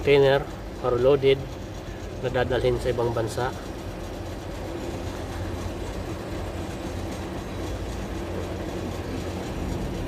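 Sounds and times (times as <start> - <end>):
truck engine idling: 0.0 - 10.0.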